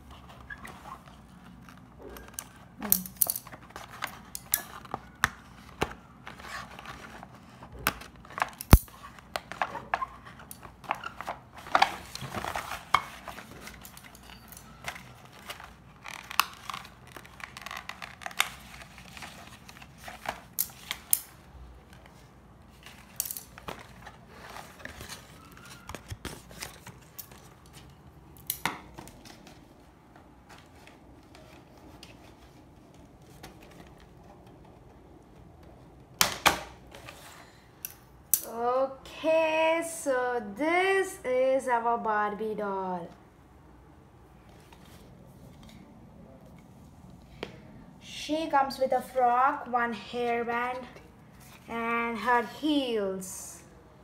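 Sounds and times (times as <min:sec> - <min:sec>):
rustling card and plastic: 0:00.0 - 0:36.0, 0:50.3 - 0:52.5.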